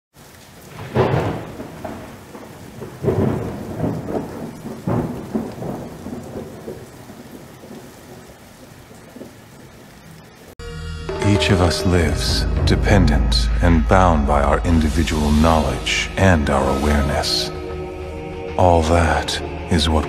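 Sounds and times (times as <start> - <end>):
steady hiss of rain: 0.1 - 10.6, 14.6 - 20.0
rumbling thunderclaps: 0.6 - 9.4.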